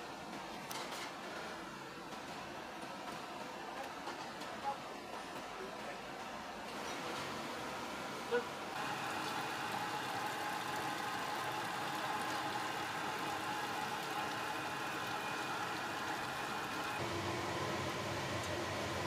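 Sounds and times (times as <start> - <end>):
kitchen machinery humming: 6.8 - 19.0
water pouring into a pot: 8.8 - 17.0.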